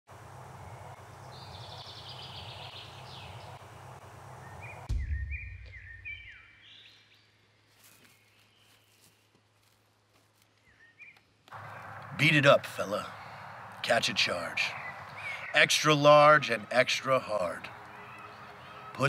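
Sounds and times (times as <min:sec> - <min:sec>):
birds chirping: 0:00.1 - 0:09.4, 0:10.5 - 0:19.0
low thump: 0:04.9 - 0:06.0
bird trilling: 0:14.4 - 0:16.8.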